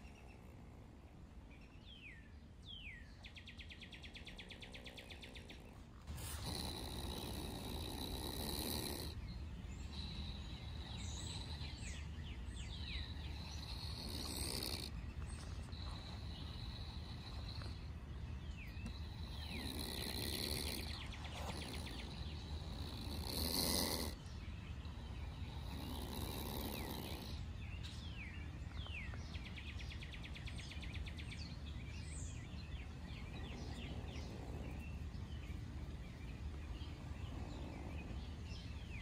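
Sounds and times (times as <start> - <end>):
birds chirping: 0.0 - 39.0
steady insect-like buzz: 4.4 - 24.2, 24.9 - 27.4
opossum hissing: 4.9 - 11.9, 13.0 - 15.0, 18.8 - 24.2, 25.3 - 27.4.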